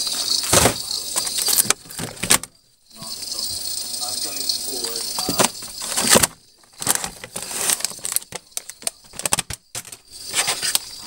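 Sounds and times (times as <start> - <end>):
plastic packaging crinkling: 5.3 - 10.8.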